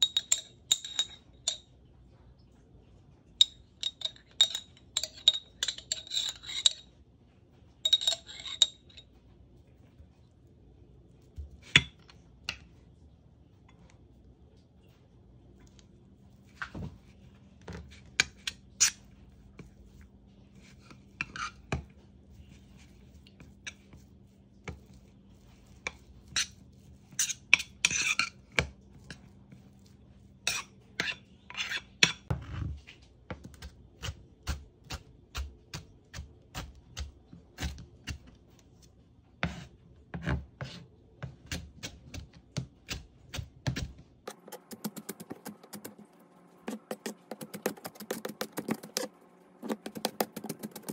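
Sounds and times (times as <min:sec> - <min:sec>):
metal spoon scraping ceramic bowl: 0:00.0 - 0:01.6, 0:03.4 - 0:06.9, 0:07.8 - 0:09.0, 0:25.7 - 0:28.4, 0:30.4 - 0:32.3, 0:44.3 - 0:46.1, 0:46.7 - 0:50.9
knife chopping on plastic board: 0:39.4 - 0:46.0, 0:46.7 - 0:50.9.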